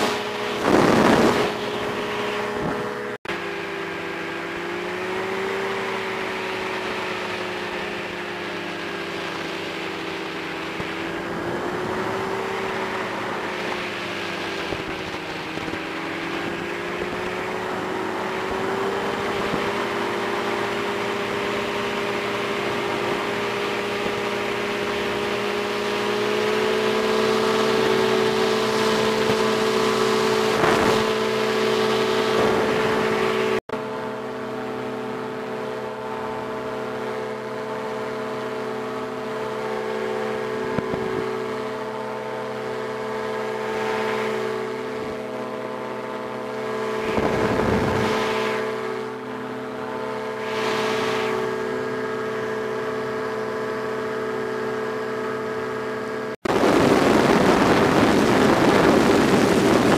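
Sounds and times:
wind buffeting microphone: 0.0s - 3.1s, 6.6s - 26.6s, 27.4s - 33.6s, 40.4s - 41.8s, 44.4s - 49.3s, 56.5s - 59.9s
engine and propeller droning: 0.0s - 59.9s.

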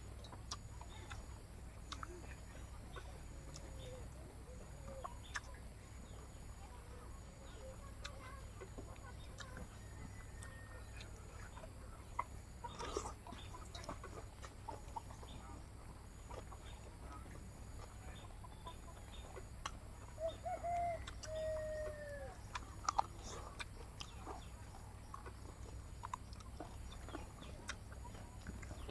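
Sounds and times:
wet eating clicks and smacks: 0.1s - 4.0s, 4.8s - 5.7s, 7.7s - 18.0s, 18.6s - 21.4s, 22.4s - 28.9s
hen clucking: 7.8s - 28.9s.

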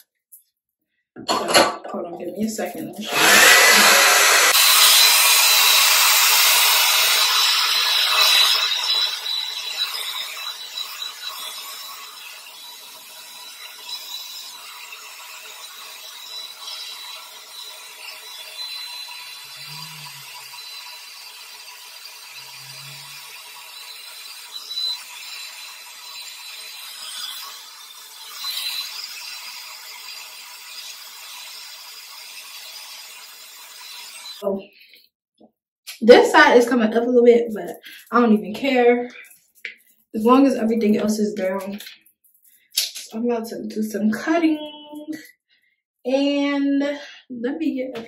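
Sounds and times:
hair dryer blowing: 3.0s - 12.1s.

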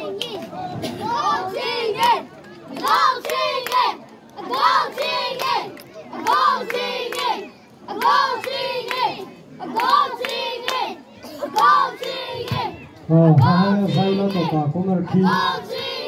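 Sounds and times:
crowd chanting: 0.0s - 16.0s
hand claps: 2.0s - 4.1s, 5.0s - 7.3s.

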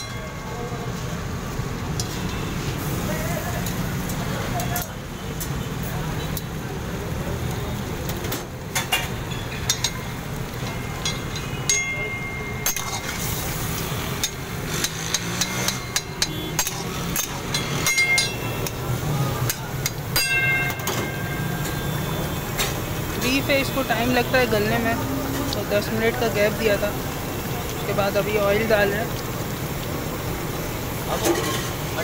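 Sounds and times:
metal spatula clanking on pan: 8.7s - 13.3s, 14.2s - 18.8s.

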